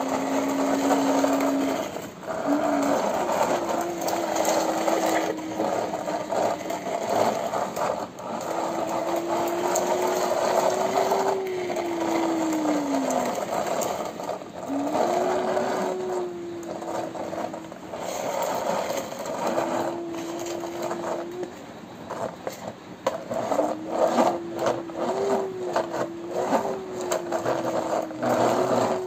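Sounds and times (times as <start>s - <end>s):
toy wheels and gears whirring: 0.0s - 29.0s
toy whine: 0.0s - 29.0s.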